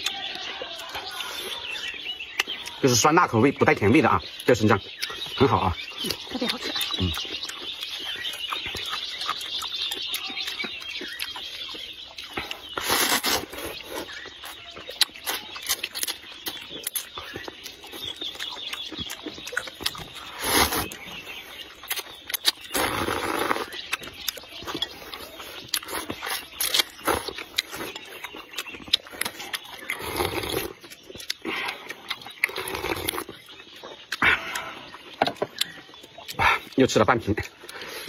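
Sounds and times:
wet chewing smacks: 0.0s - 3.0s, 4.0s - 38.0s
noodle slurping: 12.4s - 14.3s, 19.6s - 24.0s, 24.6s - 33.5s.

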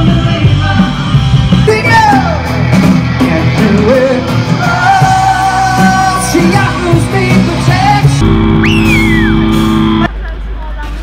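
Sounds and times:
person singing lead vocal: 0.0s - 2.6s, 3.2s - 8.2s
live rock band playing: 0.0s - 10.2s
electric guitars: 0.0s - 10.7s
drums: 0.0s - 11.0s.

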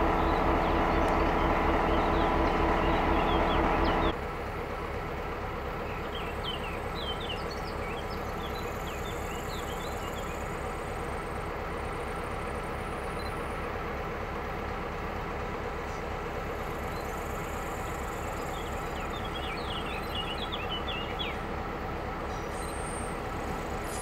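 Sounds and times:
birds chirping: 0.0s - 4.2s, 5.8s - 11.2s, 15.8s - 21.6s
locomotive engine hum: 0.0s - 24.0s
locomotive idling rumble: 0.0s - 24.0s.

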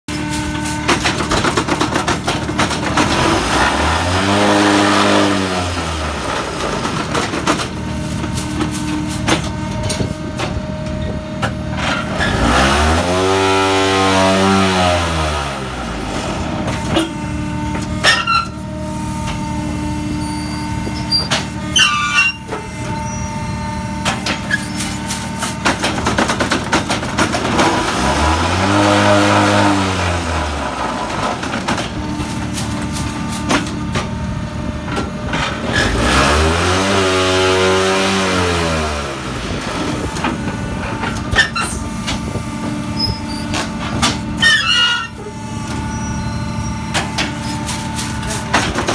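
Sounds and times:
machine knocks and clatter: 25.4s - 28.0s.

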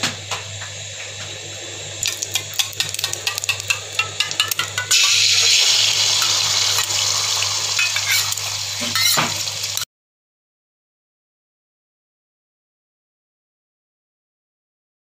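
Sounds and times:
eggs sizzling in hot oil: 1.8s - 9.9s
oil crackling: 2.0s - 9.8s.

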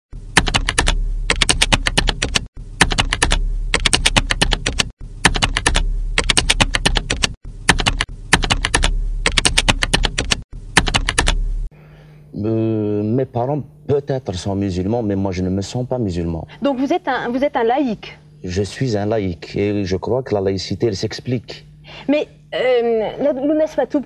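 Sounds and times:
keyboard key clicks: 0.4s - 11.4s.

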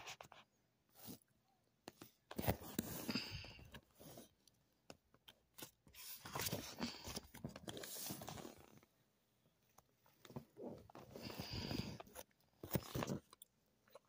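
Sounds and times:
paper pages rustling: 5.4s - 8.9s.

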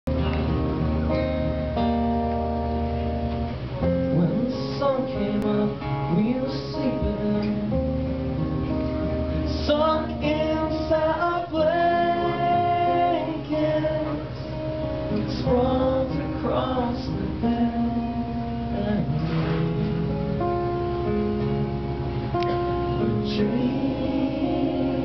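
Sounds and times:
acoustic guitar strumming: 0.1s - 25.0s
person singing: 9.4s - 20.3s, 23.0s - 25.0s.

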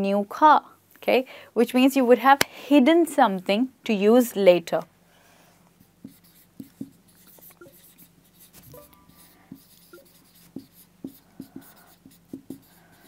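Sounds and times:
marker writing on whiteboard: 5.8s - 13.0s.

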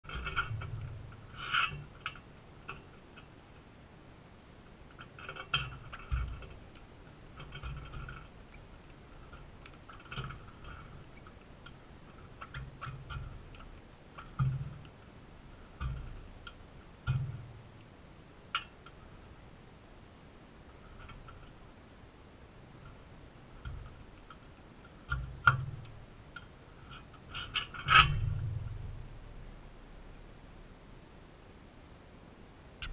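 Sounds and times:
bird cracking seeds: 4.9s - 18.8s.

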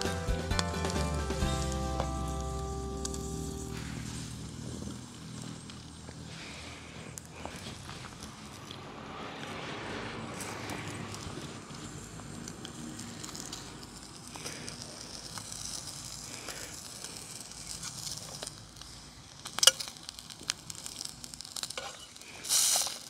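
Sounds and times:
meat sizzling in a pan: 12.7s - 23.0s.

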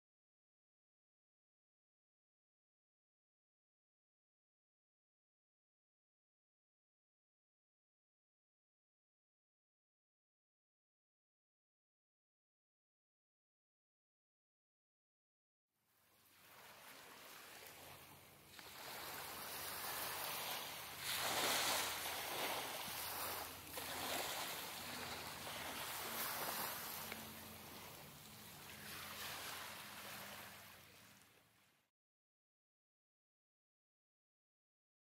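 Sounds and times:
small waves on pebbly shore: 16.0s - 31.8s.

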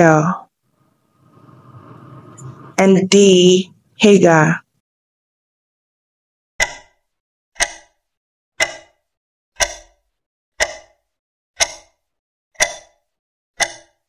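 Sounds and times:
sharp timer ticks: 6.6s - 14.0s.

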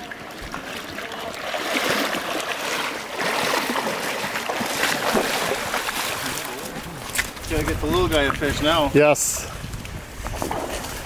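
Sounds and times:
splashing of wading: 0.0s - 9.1s, 9.8s - 11.0s
shallow river water running: 0.0s - 11.0s.

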